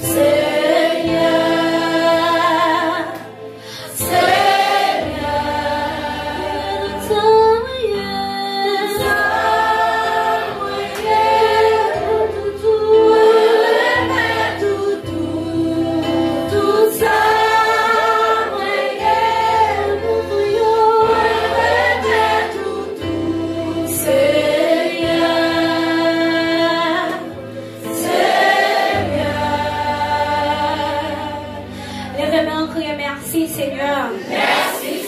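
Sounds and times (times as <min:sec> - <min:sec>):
woman singing gospel song: 0:06.7 - 0:09.7
voices singing along: 0:08.7 - 0:31.4.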